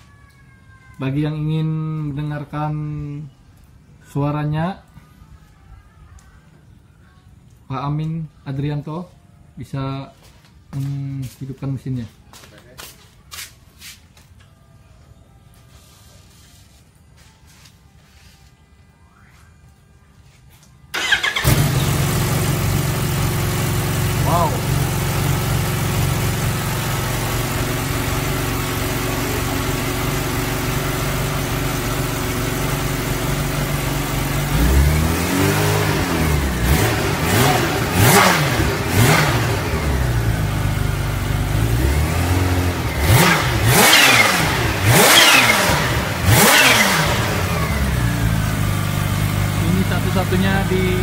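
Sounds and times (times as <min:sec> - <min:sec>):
motorcycle engine idling and revving: 0:20.9 - 0:51.0.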